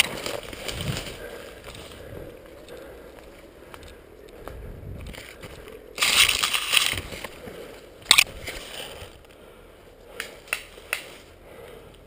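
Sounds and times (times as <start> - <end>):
rustling through undergrowth: 0.0 - 11.8
sharp crack: 8.0 - 8.6
faint snaps: 10.2 - 11.1.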